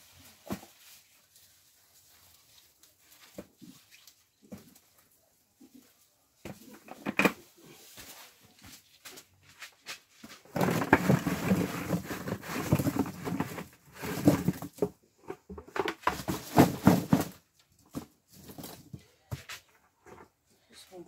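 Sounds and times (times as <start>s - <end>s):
cucumbers clattering into a box: 10.4s - 19.0s.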